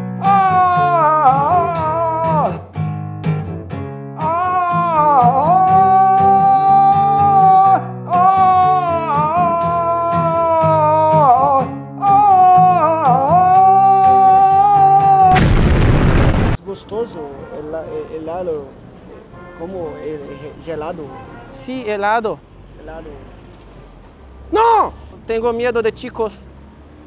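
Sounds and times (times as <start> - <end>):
man singing long notes: 0.0 - 2.8, 4.2 - 15.6
acoustic guitar chords: 0.0 - 16.6.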